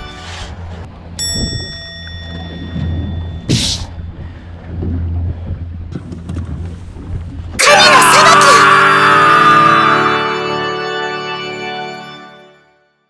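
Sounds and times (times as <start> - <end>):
boat engine humming: 0.0 - 12.5
ringing ding: 1.2 - 4.0.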